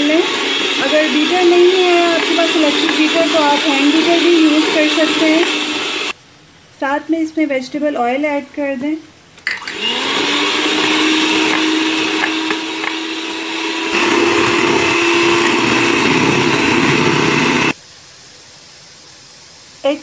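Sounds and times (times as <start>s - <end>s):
electric hand mixer whine: 0.0s - 6.2s, 9.5s - 17.8s.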